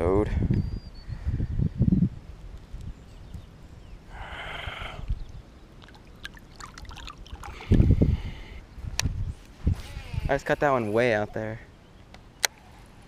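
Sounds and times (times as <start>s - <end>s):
water dripping: 5.2s - 8.0s
water splashing: 5.8s - 8.0s.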